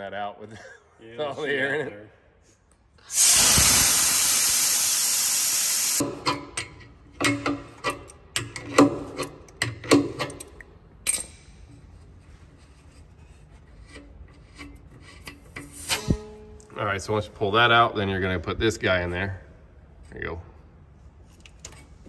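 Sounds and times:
compressed air hissing: 0:03.1 - 0:06.0.

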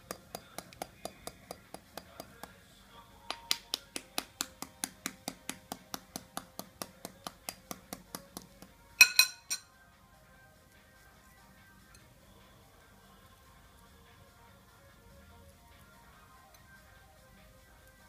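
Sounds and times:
fingertip tapping on eggshell: 0:00.0 - 0:02.6, 0:03.3 - 0:08.8.

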